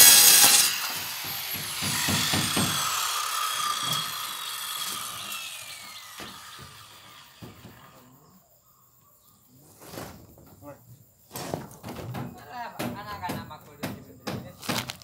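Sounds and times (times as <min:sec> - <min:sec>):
circular saw spinning down: 0:00.0 - 0:07.4.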